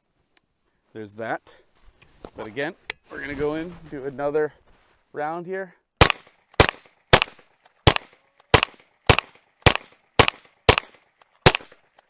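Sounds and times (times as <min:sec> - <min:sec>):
rifle shots: 0:06.0 - 0:11.9.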